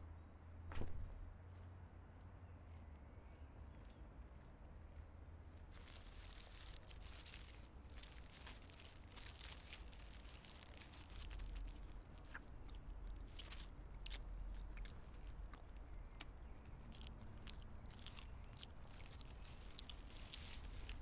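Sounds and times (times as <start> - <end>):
low steady hum: 0.0 - 21.0
paper wrapper crinkling and tearing: 5.7 - 14.3, 16.9 - 21.0
biting and chewing crunches: 5.7 - 21.0.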